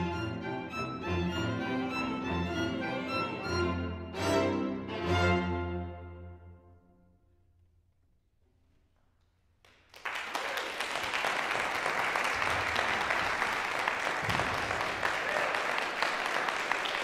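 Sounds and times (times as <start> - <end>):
audience applause: 9.7 - 17.0.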